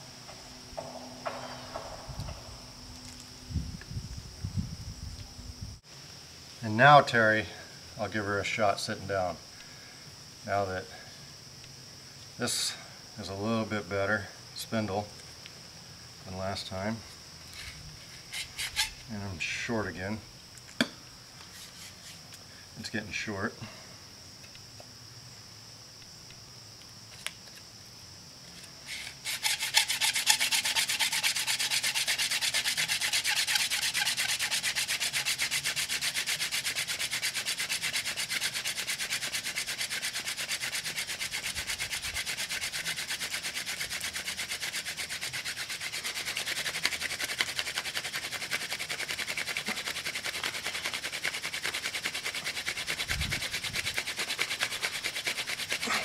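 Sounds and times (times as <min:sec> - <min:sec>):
wooden hand drill grinding: 0:17.5 - 0:19.0, 0:28.9 - 0:56.0.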